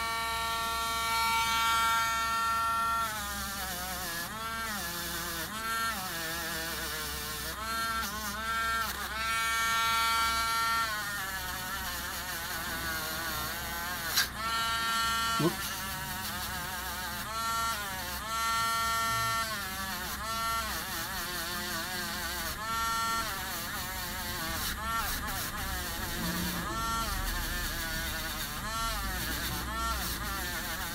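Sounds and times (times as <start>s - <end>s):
rotary tool motor whine: 0.0s - 30.9s
sharp click: 14.1s - 14.3s.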